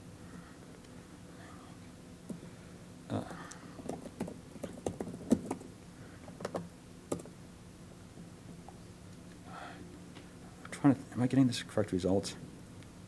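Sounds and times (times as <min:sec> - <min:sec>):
low steady hum: 0:00.0 - 0:13.0
typing on laptop keyboard: 0:03.8 - 0:05.7, 0:06.4 - 0:07.3.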